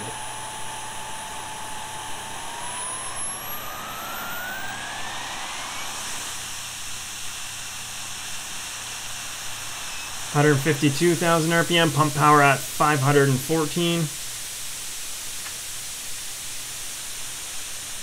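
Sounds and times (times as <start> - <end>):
model jet turbine whining: 0.0 - 15.0.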